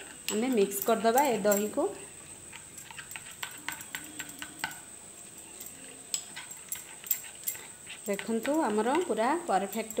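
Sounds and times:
fingers tapping glass bowl: 2.8s - 4.9s, 5.5s - 10.0s.

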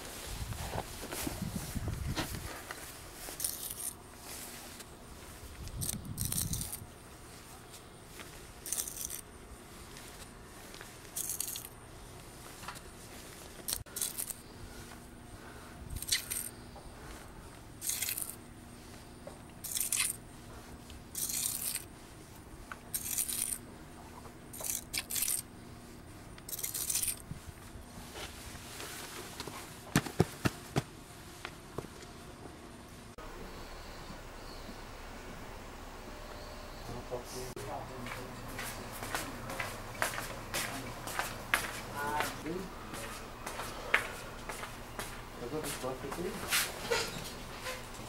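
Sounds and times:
scraping rustling noises: 0.0s - 31.6s, 37.6s - 48.0s.

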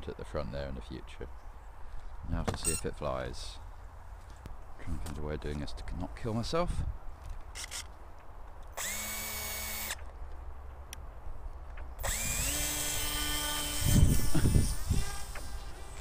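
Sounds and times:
electric motor propeller whine: 8.8s - 10.0s, 12.0s - 16.0s.

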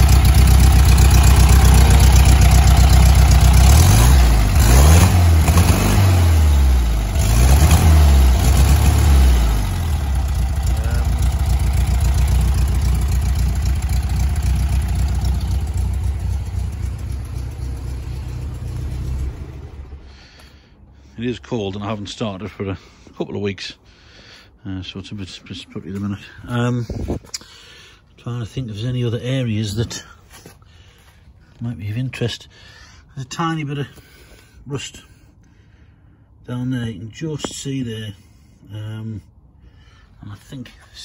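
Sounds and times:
car engine idling and revving: 0.0s - 21.1s.

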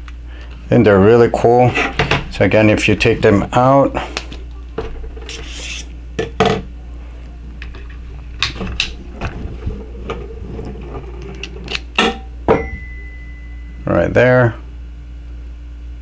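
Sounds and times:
faint steady high tone: 12.5s - 14.6s.

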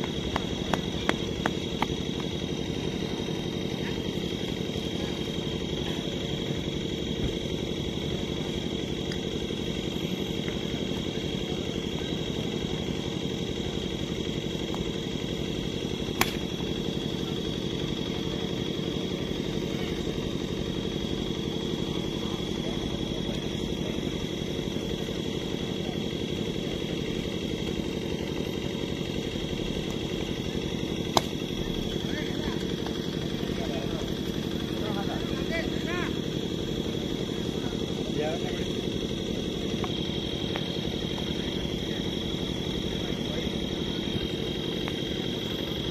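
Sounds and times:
engine hum with high whine: 0.0s - 45.9s
sharp crack: 16.1s - 16.6s, 31.0s - 31.7s.

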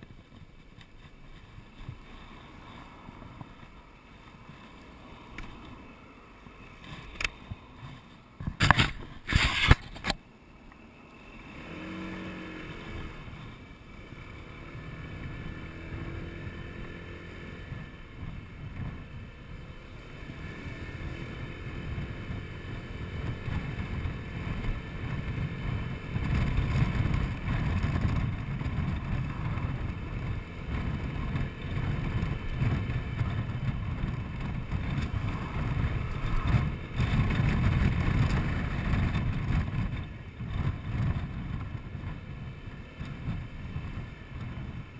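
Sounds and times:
scooter engine: 0.0s - 44.9s
wind noise on microphone: 6.6s - 10.2s, 14.7s - 44.9s.

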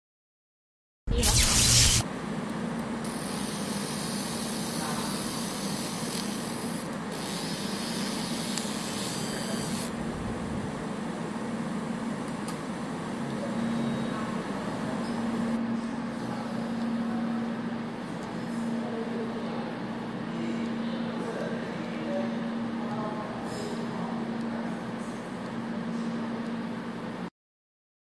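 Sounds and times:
high hiss of laser marking: 1.1s - 2.0s
laser machine humming: 1.1s - 2.0s, 3.0s - 10.0s.

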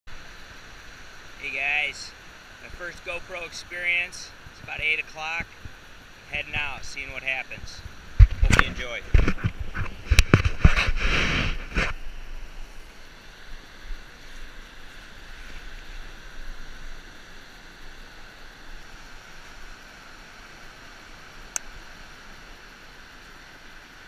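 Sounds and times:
wind rumble on microphone: 6.8s - 12.6s
loud rustling noise: 7.6s - 13.2s.

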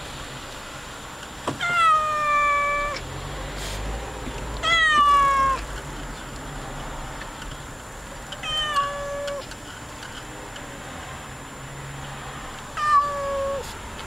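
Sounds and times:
cat meowing: 1.6s - 3.0s, 4.6s - 5.7s, 8.4s - 9.5s, 12.8s - 13.6s.

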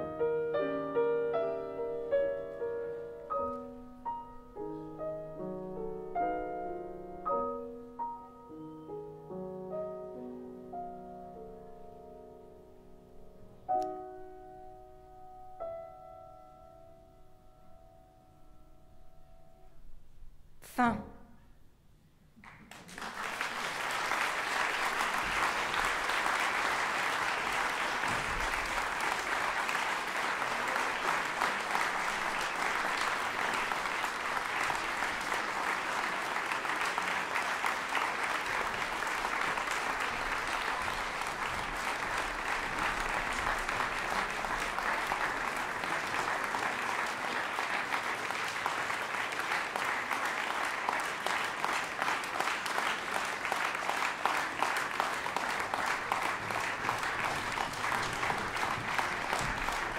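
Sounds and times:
audience applauding: 22.4s - 59.9s.

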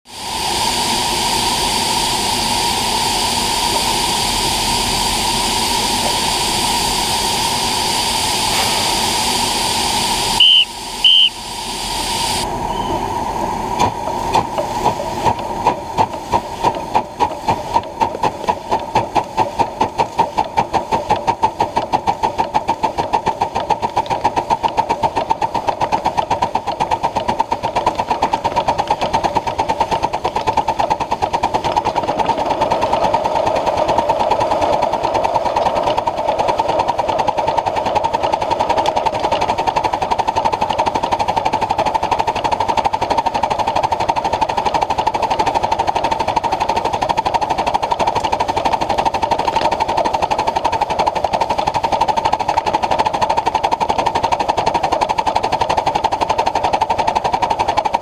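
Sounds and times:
steam hissing: 0.1s - 57.8s
locomotive exhaust chuffing: 0.2s - 58.0s
steam whistle blasts: 10.3s - 13.2s.

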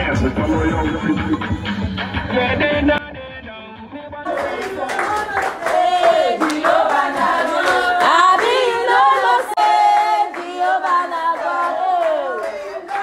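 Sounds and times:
group singing: 4.3s - 13.0s
hand claps: 4.3s - 13.0s.

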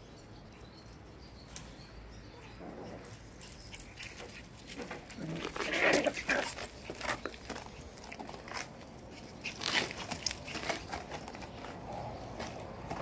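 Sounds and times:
puppies scuffling on gravel: 2.6s - 13.0s.

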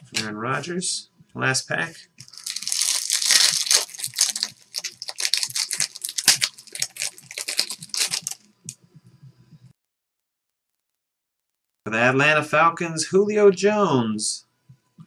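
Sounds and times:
foil wrapper tearing and crinkling: 2.2s - 8.5s.

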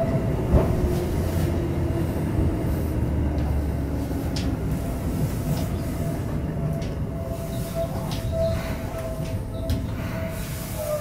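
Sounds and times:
train motor hum: 0.0s - 11.0s
train wheels on rail: 0.0s - 11.0s.

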